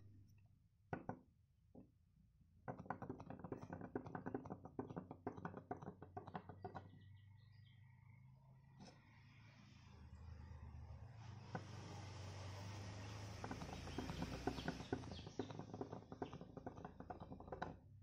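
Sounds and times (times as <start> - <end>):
wooden toy knocking on board: 0.9 - 1.8, 2.7 - 7.0, 13.2 - 18.0.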